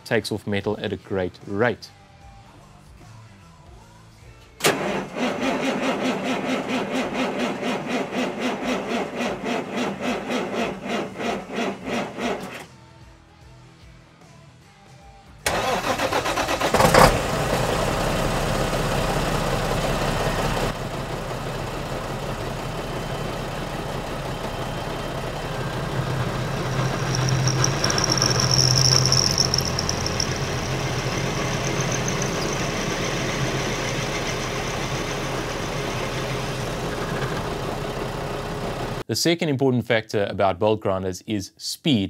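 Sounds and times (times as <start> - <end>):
drill press motor hum: 23.4 - 37.8
drill bit squealing in metal: 26.0 - 35.1.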